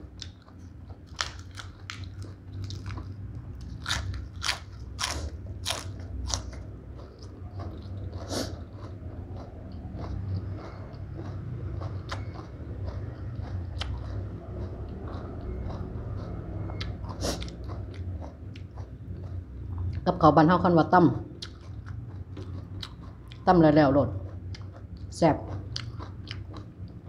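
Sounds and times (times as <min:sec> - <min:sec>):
soft chewing: 0:00.0 - 0:20.1, 0:21.4 - 0:27.0
crunching raw vegetables: 0:00.1 - 0:20.0.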